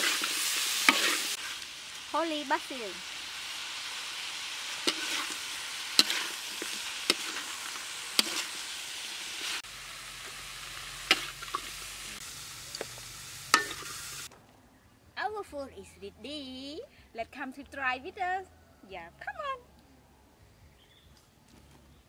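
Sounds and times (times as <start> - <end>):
stir-fry sizzling in wok: 0.0 - 14.3
metal spatula clinking on pan: 13.6 - 14.0.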